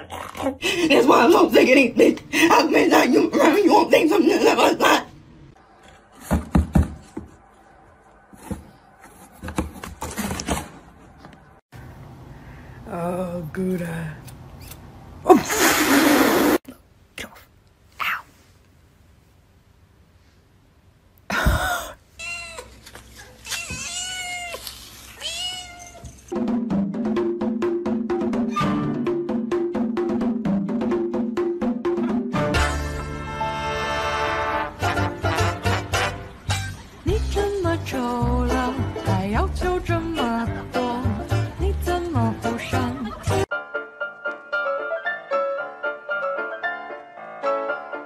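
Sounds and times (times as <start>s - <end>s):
knocks on cardboard box: 6.2s - 7.3s
cardboard rustling and tapping: 8.4s - 10.8s
cat meowing: 23.4s - 26.2s.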